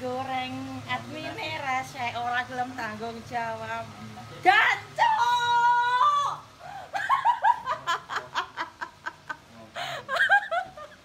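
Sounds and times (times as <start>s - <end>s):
woman laughing rapidly: 6.8s - 11.0s.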